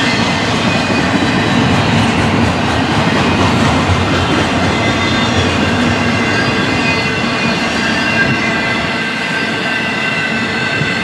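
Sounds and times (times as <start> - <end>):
high wheel squeal: 0.0 - 2.2, 4.2 - 11.0
train wheels rumbling on rail: 0.0 - 11.0.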